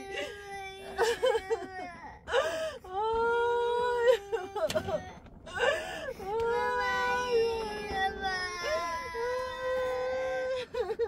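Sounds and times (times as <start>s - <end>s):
person crying with high wail: 0.0s - 2.8s, 3.8s - 6.1s, 8.5s - 11.0s.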